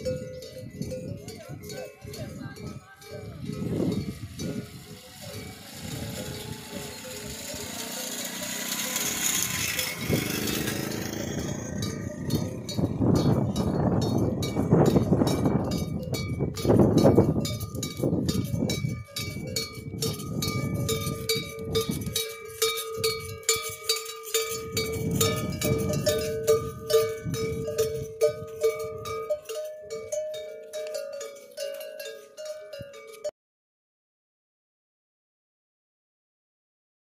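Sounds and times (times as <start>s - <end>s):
camel bells clanking and ringing: 0.0s - 33.3s
low rumble: 8.9s - 18.8s.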